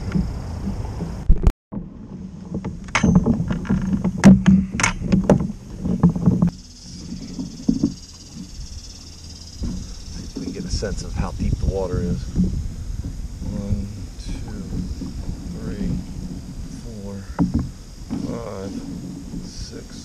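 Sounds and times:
steady hiss: 0:06.5 - 0:20.0
knocks against kayak hull: 0:09.6 - 0:19.7.

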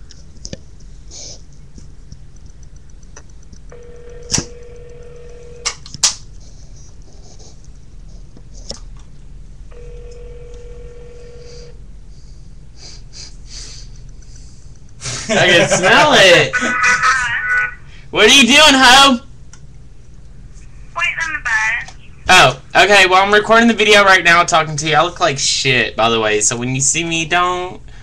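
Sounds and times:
sharp clicks: 0:01.5 - 0:06.4, 0:14.0 - 0:15.0
telephone ringback tone: 0:03.8 - 0:05.6, 0:09.7 - 0:11.8.

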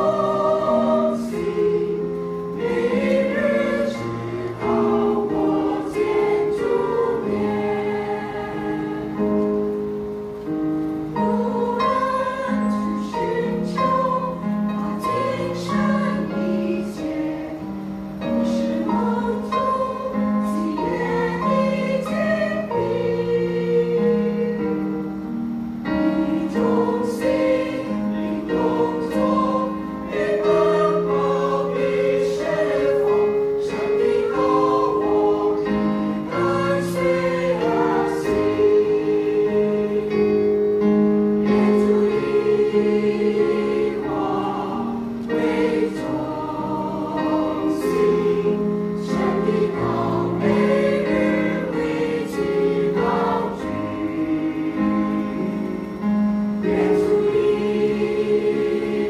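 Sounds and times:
mixed choir singing: 0:00.0 - 0:10.1, 0:11.1 - 0:59.0.

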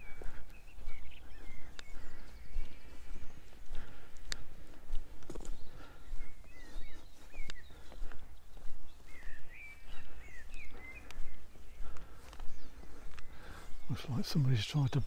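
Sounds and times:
songbird twittering: 0:00.0 - 0:04.7, 0:05.4 - 0:15.0
footsteps walking: 0:00.0 - 0:14.6.

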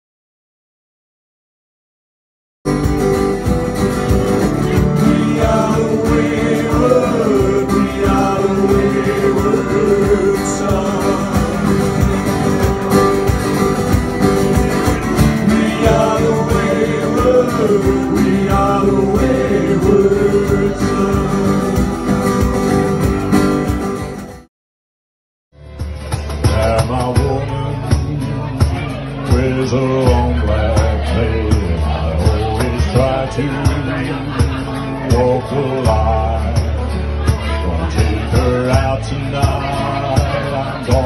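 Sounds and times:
electric bass: 0:02.7 - 0:24.4, 0:25.6 - 0:41.0
strummed acoustic guitar: 0:02.7 - 0:24.5, 0:25.6 - 0:41.0
man singing: 0:04.5 - 0:13.0, 0:14.6 - 0:22.4, 0:26.4 - 0:41.0.

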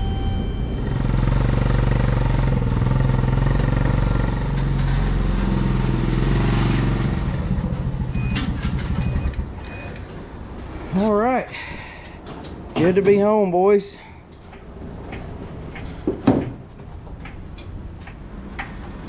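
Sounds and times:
atv engine running: 0:00.0 - 0:09.7.

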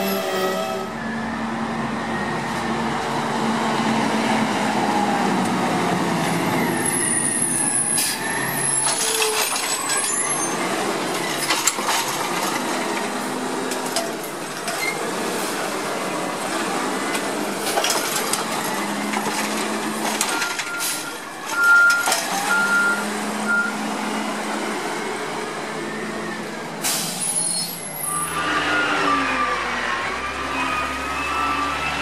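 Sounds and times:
air brakes hissing: 0:07.0 - 0:09.3, 0:20.8 - 0:21.2, 0:26.8 - 0:28.0.

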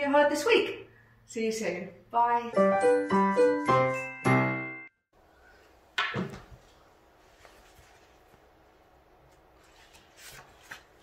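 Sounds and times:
keyboard jingle chord: 0:02.6 - 0:05.0
book handling noise: 0:06.0 - 0:11.0.

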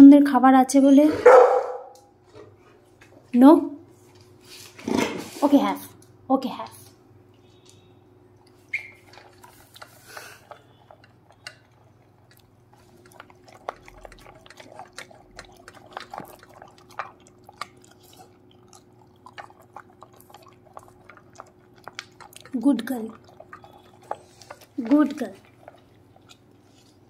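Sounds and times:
dog crunching dry kibble: 0:08.6 - 0:27.0
kibble clicking on metal bowl: 0:08.8 - 0:18.0.

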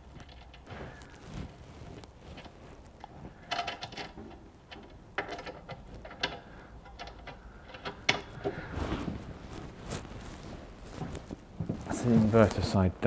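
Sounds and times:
metallic clicks and scrapes: 0:00.0 - 0:09.2.

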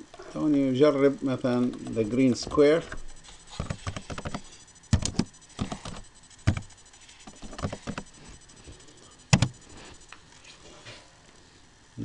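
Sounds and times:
keyboard typing: 0:03.5 - 0:09.6.

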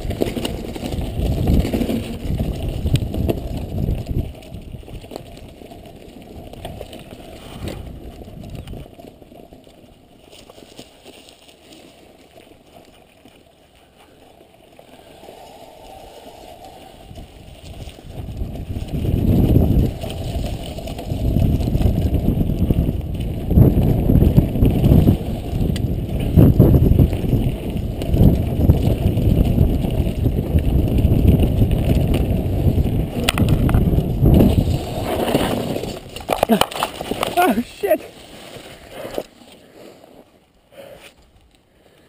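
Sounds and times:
wind buffeting microphone: 0:00.0 - 0:05.4, 0:14.8 - 0:37.7
bike tyre and frame rumble: 0:00.0 - 0:42.0
sharp bike rattles: 0:17.1 - 0:37.4.

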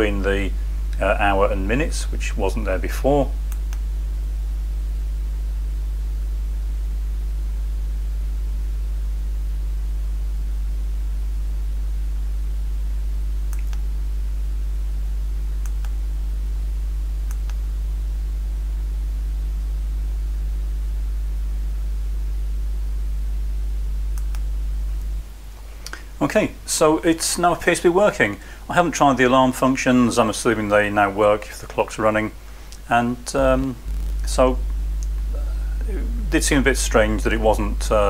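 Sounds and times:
electrical mains hum: 0:00.0 - 0:38.0
faint clicks: 0:13.5 - 0:13.9, 0:15.6 - 0:16.0, 0:17.3 - 0:17.6, 0:24.1 - 0:25.1, 0:25.8 - 0:26.1, 0:33.6 - 0:35.3.

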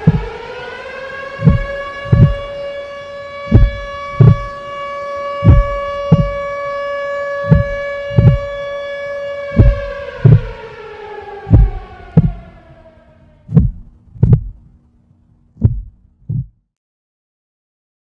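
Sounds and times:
heartbeat thumps: 0:00.0 - 0:00.4, 0:01.4 - 0:02.6, 0:03.4 - 0:04.6, 0:05.4 - 0:06.6, 0:07.4 - 0:08.6, 0:09.5 - 0:10.6, 0:11.5 - 0:12.5, 0:13.5 - 0:14.7, 0:15.6 - 0:16.7
siren-like tone sliding up: 0:00.0 - 0:14.6.

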